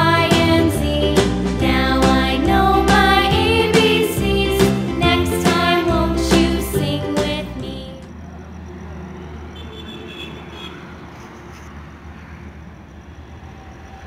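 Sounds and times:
children's song: 0.0 - 8.2.

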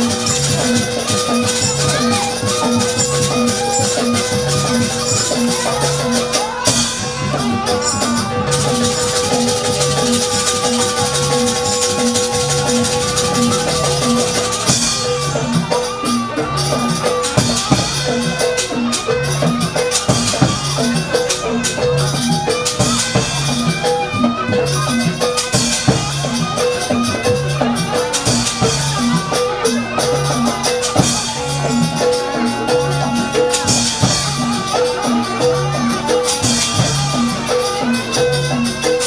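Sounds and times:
gamelan drums and gongs: 0.0 - 39.0.

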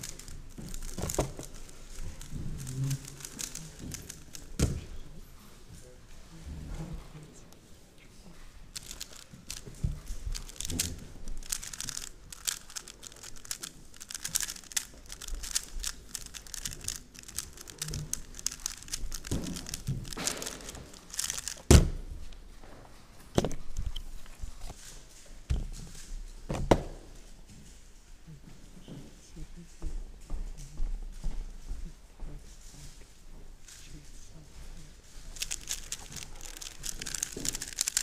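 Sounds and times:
plastic cube clicks and rattles: 0.0 - 4.9, 8.7 - 21.7, 23.4 - 24.4, 35.2 - 38.0.

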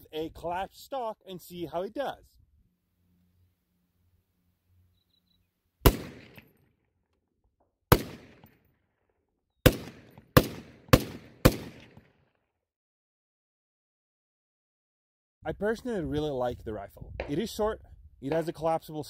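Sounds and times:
rifle shots: 5.8 - 6.6, 7.9 - 8.6, 9.6 - 12.2.

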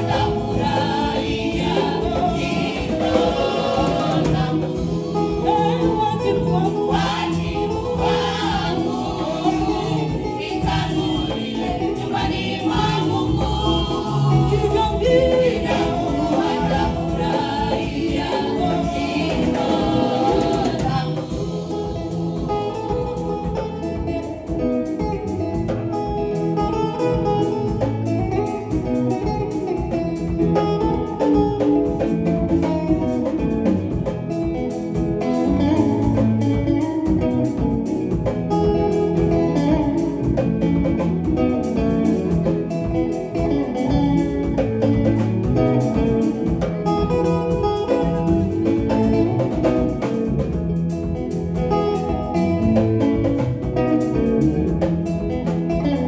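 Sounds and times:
choir singing: 0.0 - 24.3
guitar accompaniment: 0.0 - 56.0.

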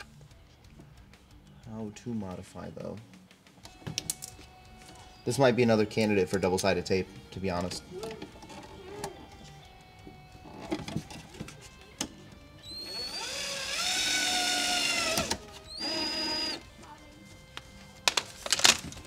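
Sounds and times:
cordless drill drilling plastic: 12.6 - 16.6.

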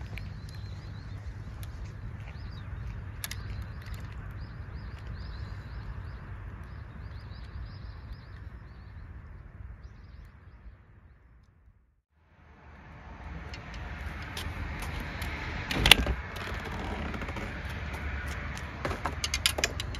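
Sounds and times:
bird chirps: 0.0 - 11.2
wind rumble on microphone: 0.0 - 11.9, 12.5 - 19.9.

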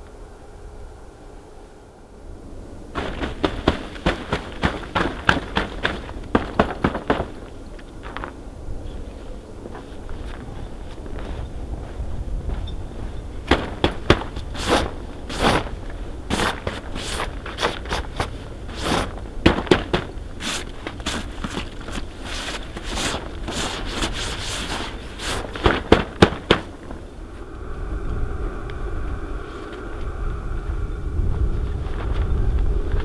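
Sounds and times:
steady low hum: 0.0 - 33.0
footsteps in packed snow: 3.0 - 8.4, 9.0 - 27.1
frozen fabric crackling: 3.0 - 27.5.

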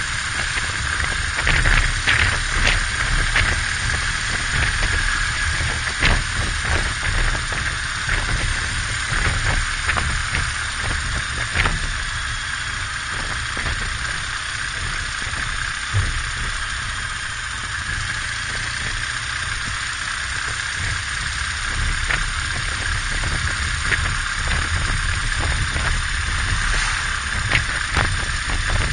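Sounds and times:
motorcycle engine running: 0.0 - 28.9
wind noise on microphone: 0.0 - 28.9.

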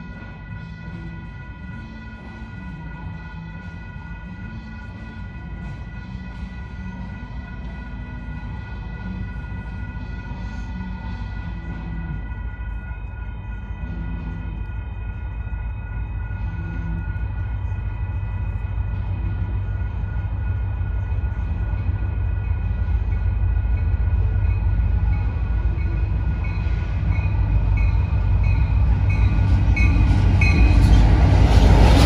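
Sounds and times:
diesel locomotives rumbling: 0.0 - 32.0
crossing bell ringing: 11.1 - 32.0.

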